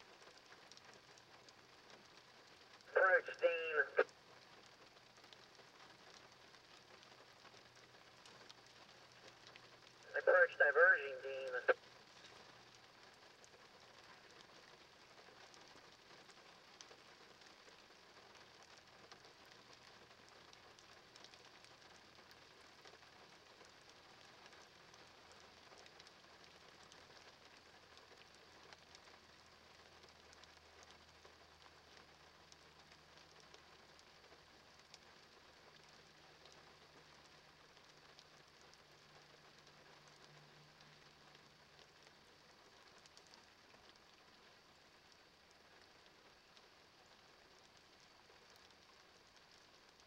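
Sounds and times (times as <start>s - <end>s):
light rain patter: 0.0s - 50.0s.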